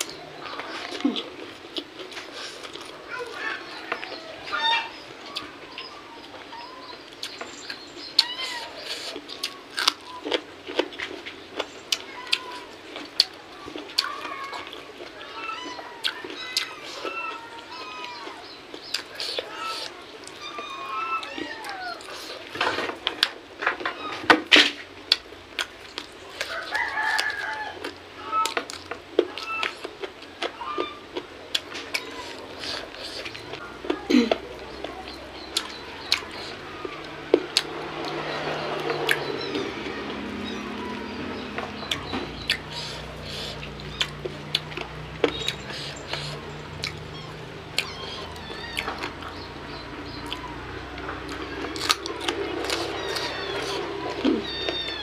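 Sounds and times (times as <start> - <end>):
chewing and lip smacks: 7.1 - 20.6, 25.1 - 40.5, 41.6 - 55.0
rooster crowing: 26.4 - 28.6
high chirping calls: 34.5 - 55.0
fingers working rice: 35.1 - 55.0
wet chewing and mouth smacks: 41.8 - 49.4, 50.1 - 54.9.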